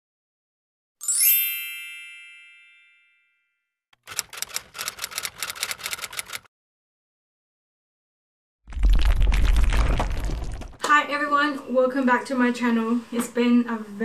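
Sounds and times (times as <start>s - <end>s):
bright chime: 1.0s - 3.6s
typewriter key clicks: 4.0s - 6.5s.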